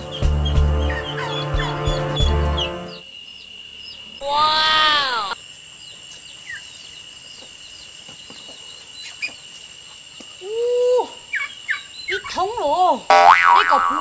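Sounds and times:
small birds chirping: 0:00.0 - 0:13.1
chicken call: 0:04.2 - 0:05.4.

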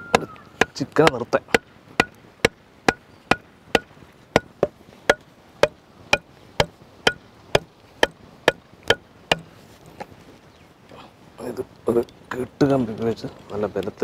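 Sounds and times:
hammer striking stakes: 0:00.0 - 0:09.6.

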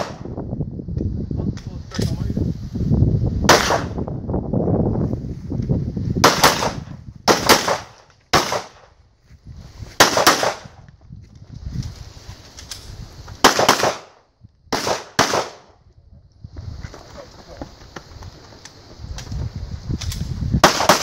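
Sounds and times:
pistol shots: 0:03.5 - 0:04.0, 0:06.2 - 0:08.9, 0:10.0 - 0:10.7, 0:13.4 - 0:15.7, 0:20.6 - 0:21.0.

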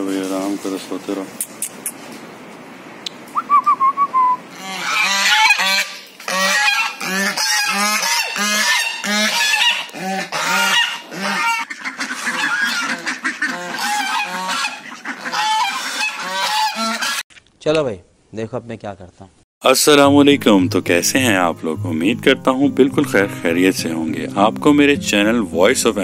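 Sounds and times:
geese honking: 0:04.5 - 0:17.2.

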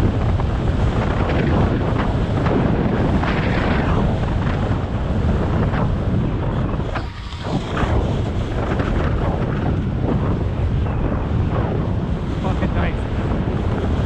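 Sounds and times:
wind buffeting microphone: 0:00.0 - 0:14.0
skis scraping over snow: 0:06.8 - 0:09.5.

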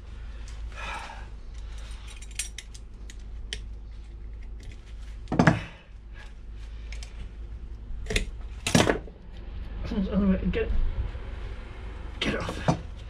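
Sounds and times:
clicks and scrapes of hands working: 0:01.5 - 0:05.6, 0:06.2 - 0:07.2, 0:08.0 - 0:09.0.

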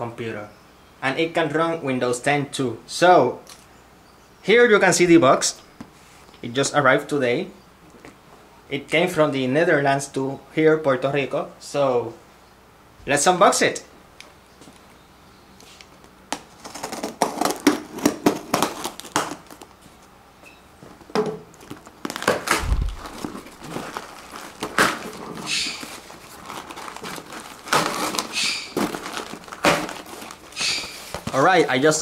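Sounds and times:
packing tape pulled off box: 0:15.6 - 0:19.8, 0:21.5 - 0:31.7
cardboard crinkling and tearing: 0:16.4 - 0:19.8, 0:21.5 - 0:32.0.

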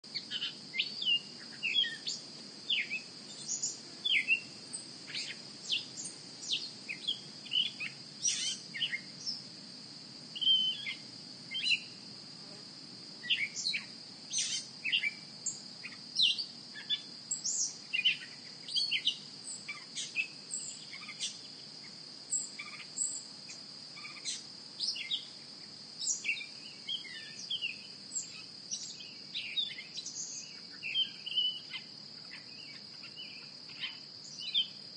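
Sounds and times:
bird chirps and calls: 0:00.2 - 0:04.5, 0:05.1 - 0:09.1, 0:10.4 - 0:11.9, 0:13.2 - 0:15.2, 0:26.1 - 0:34.7.

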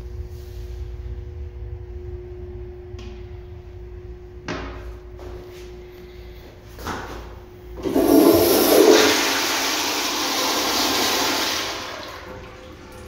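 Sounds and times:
toilet flushing water rush: 0:07.8 - 0:13.0.

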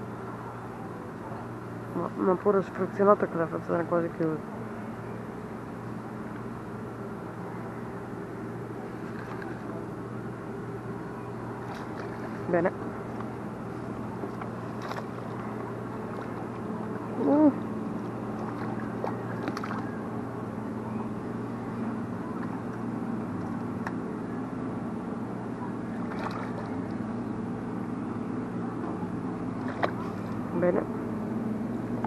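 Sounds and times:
steady low hum: 0:00.0 - 0:32.0
fish splashing at the surface: 0:18.2 - 0:20.0, 0:26.0 - 0:26.9.

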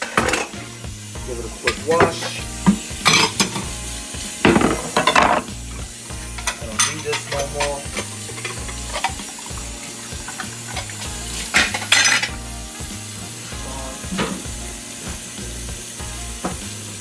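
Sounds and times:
dishes clattering: 0:00.0 - 0:00.8, 0:01.6 - 0:03.8, 0:04.4 - 0:05.6, 0:06.3 - 0:12.4
tap running into steel sink: 0:01.7 - 0:03.7, 0:04.5 - 0:05.6.

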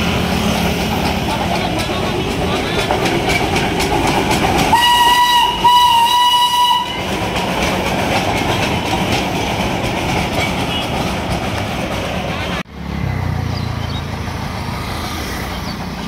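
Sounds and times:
train coaches rumbling and clattering: 0:00.0 - 0:16.0
steam locomotive whistle: 0:04.7 - 0:07.2.

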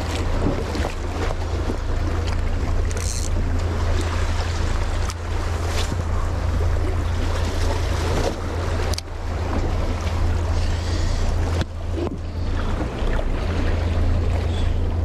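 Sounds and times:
low rumble: 0:00.0 - 0:15.0
sea waves washing: 0:00.0 - 0:15.0.

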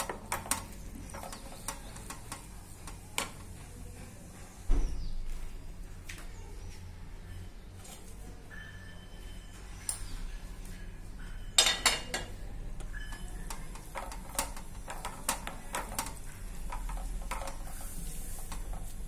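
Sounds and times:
nuts frying in fat: 0:00.0 - 0:03.6, 0:11.9 - 0:19.0.

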